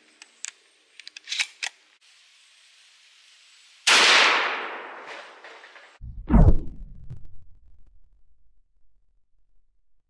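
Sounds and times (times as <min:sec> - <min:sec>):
shotgun blast: 0:06.0 - 0:08.1.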